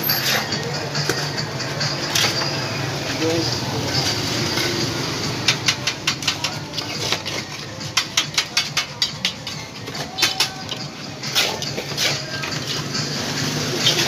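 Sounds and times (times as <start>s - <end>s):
trowel clinking on concrete blocks: 5.4s - 12.8s.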